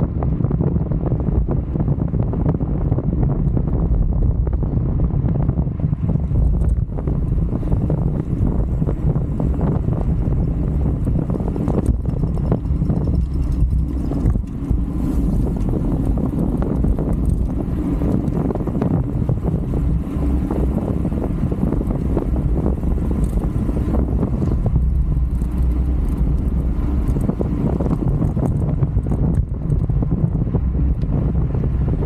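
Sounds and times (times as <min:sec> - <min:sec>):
bicycle road noise: 0:00.0 - 0:32.0
wind buffeting microphone: 0:00.0 - 0:32.0.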